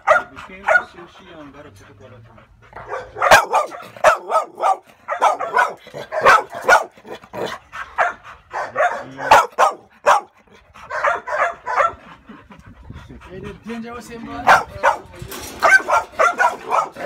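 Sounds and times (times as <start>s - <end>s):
dog barking: 0.0s - 1.0s, 2.8s - 12.0s, 14.4s - 17.0s.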